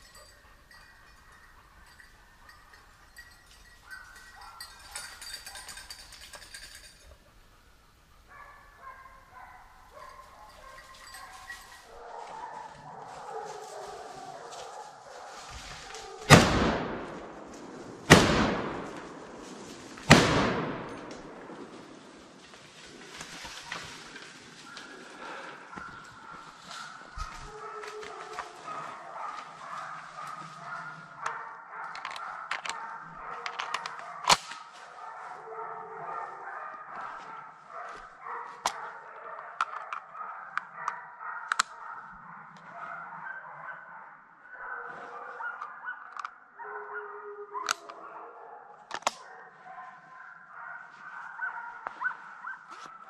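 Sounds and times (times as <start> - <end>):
distant hounds baying: 0.0 - 7.6, 8.2 - 22.4, 23.4 - 53.0
rifle shots with echo: 16.3 - 22.4.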